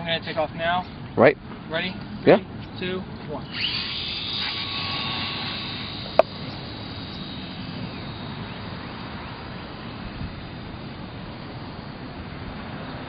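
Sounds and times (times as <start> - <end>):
rc plane motor whine: 3.4 - 12.4.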